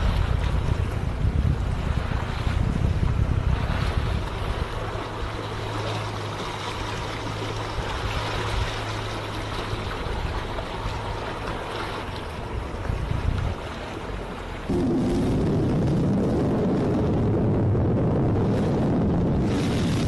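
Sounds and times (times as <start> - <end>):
boat motor humming: 0.0 - 20.0
wind buffeting microphone: 0.0 - 20.0
water rushing: 3.4 - 20.0.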